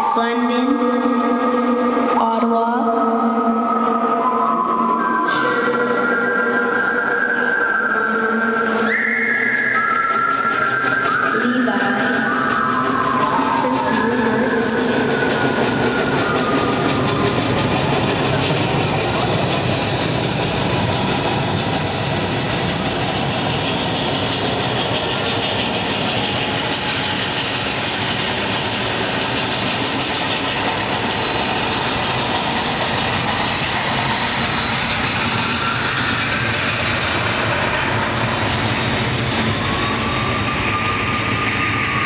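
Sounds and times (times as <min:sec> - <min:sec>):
train running over loudspeakers: 0:00.0 - 0:42.0.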